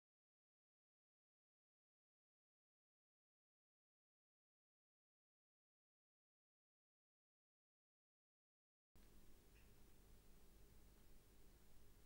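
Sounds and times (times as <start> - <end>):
faint low room hum: 9.0 - 12.0.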